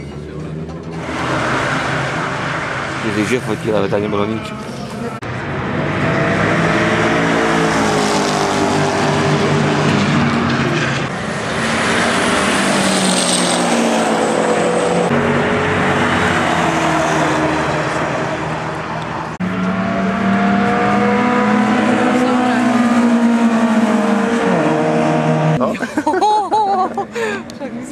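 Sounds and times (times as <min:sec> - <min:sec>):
race cars accelerating: 0:00.0 - 0:27.9.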